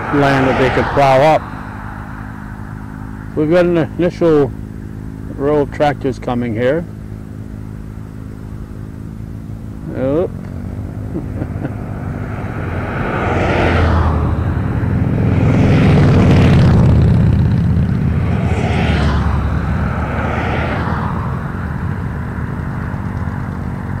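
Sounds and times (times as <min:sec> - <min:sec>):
tractor engines driving past: 0:00.0 - 0:24.0.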